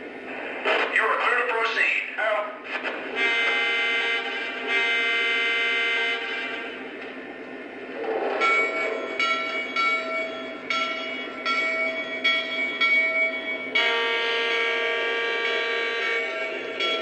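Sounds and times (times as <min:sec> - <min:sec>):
model locomotive horn blast: 0:03.2 - 0:06.8, 0:13.8 - 0:17.0
locomotive bell ringing: 0:08.0 - 0:17.0.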